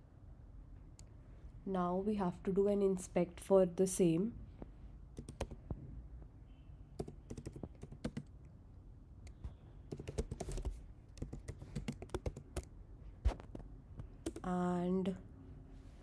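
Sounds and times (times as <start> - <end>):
typing on a keyboard: 5.2 - 5.6, 7.0 - 8.3, 9.9 - 12.7, 14.2 - 14.5.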